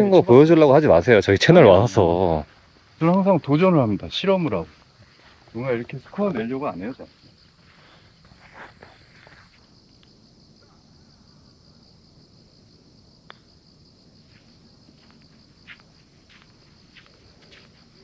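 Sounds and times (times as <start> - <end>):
insects chirring: 0.0 - 18.0
soft scuffs: 4.7 - 5.6, 7.6 - 9.6, 14.3 - 18.0.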